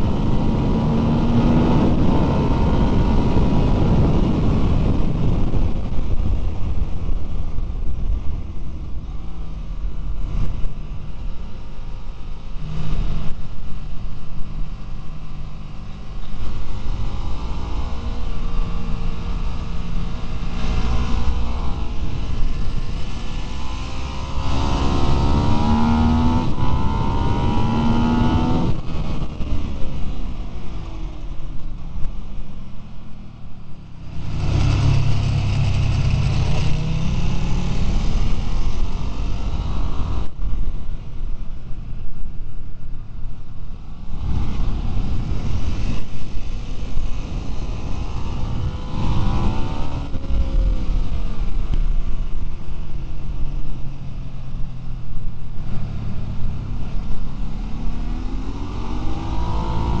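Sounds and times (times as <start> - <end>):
motorcycle engine accelerating: 0.0 - 32.7, 33.6 - 60.0
wind and road noise: 0.0 - 60.0.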